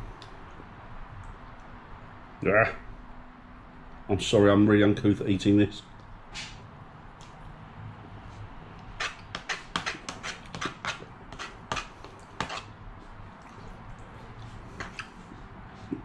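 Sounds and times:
man slurping and chewing noodles: 13.4s - 16.0s.

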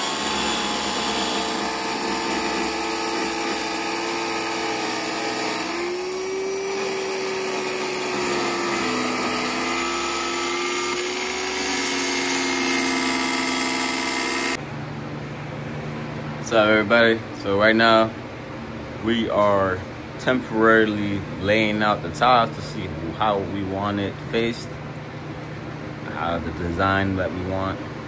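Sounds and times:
power tool motor running: 0.0s - 14.6s.

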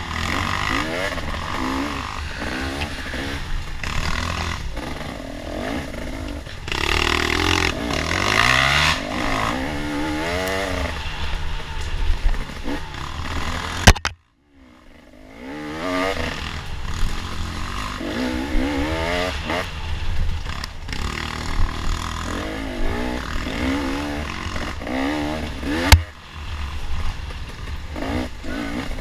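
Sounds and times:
dirt bike engine revving: 0.0s - 29.0s
sharp crack: 10.4s - 14.2s
wind noise on microphone: 18.1s - 26.1s.

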